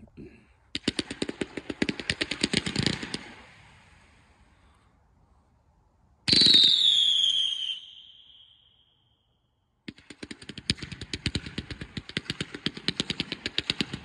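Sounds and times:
firework cake rapid shots: 0.7s - 4.3s, 6.3s - 7.7s, 9.9s - 14.0s
whistling firework shot: 6.3s - 9.1s.

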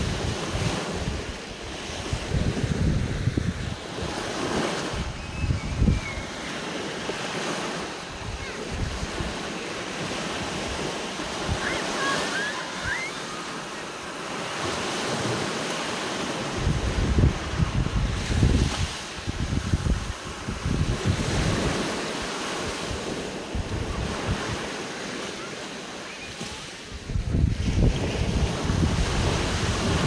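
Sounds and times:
wind buffeting microphone: 0.0s - 15.6s, 16.2s - 24.9s, 26.5s - 30.0s
small surf breaking on beach: 0.0s - 30.0s.

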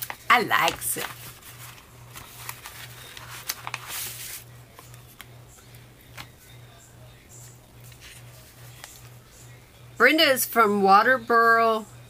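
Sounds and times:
paper rustling: 0.0s - 5.2s, 7.8s - 9.2s.

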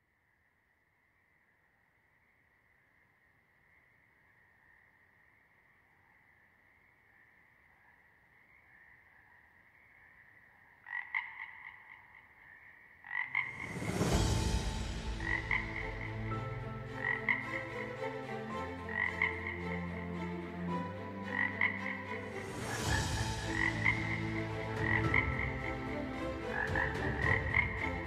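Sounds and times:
frogs croaking: 0.0s - 14.2s, 15.1s - 28.0s
low dark drone: 13.4s - 28.0s.

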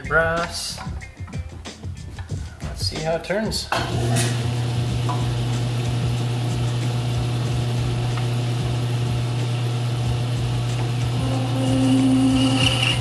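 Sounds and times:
metal lathe humming: 3.8s - 13.0s.

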